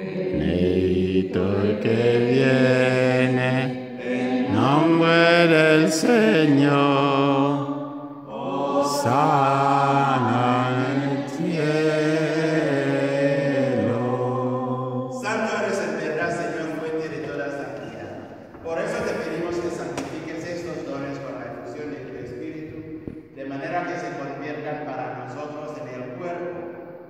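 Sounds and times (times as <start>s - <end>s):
man singing a slow chant: 0.0s - 3.8s, 4.4s - 15.9s.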